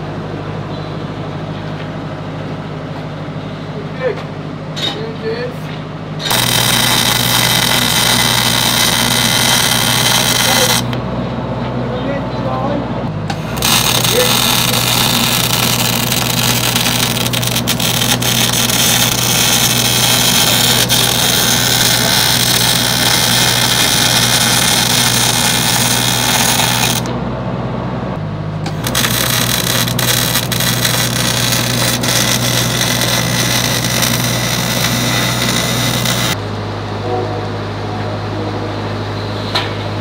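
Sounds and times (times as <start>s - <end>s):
constant low hum: 0.0s - 40.0s
welding arc crackling hiss: 6.2s - 11.0s, 13.3s - 27.1s, 28.7s - 36.4s.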